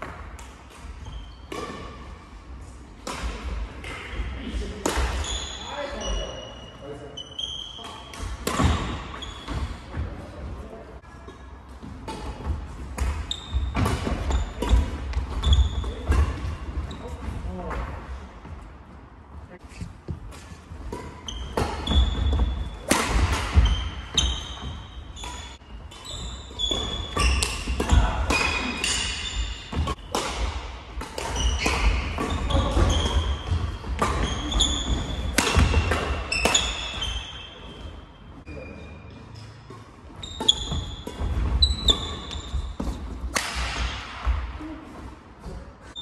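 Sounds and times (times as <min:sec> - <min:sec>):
shoes squeaking on wooden floor: 0:12.4 - 0:17.2, 0:20.9 - 0:22.8, 0:23.5 - 0:30.0, 0:31.3 - 0:38.0, 0:38.6 - 0:43.1
racket striking shuttlecock: 0:20.3 - 0:24.6, 0:26.7 - 0:36.8.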